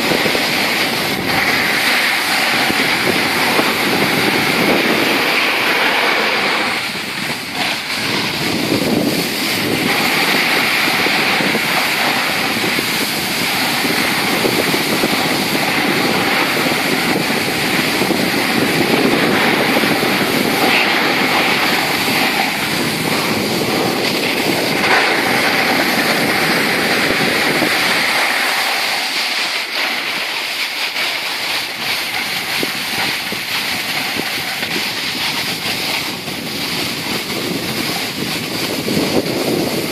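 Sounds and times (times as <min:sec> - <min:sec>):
snow hissing under skis: 0:00.0 - 0:39.9
wind buffeting microphone: 0:00.0 - 0:39.9.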